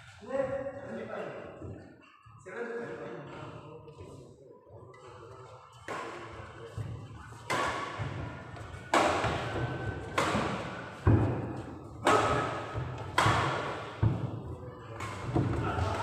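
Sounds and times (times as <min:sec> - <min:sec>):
rackets hitting shuttlecock: 0:05.8 - 0:16.0.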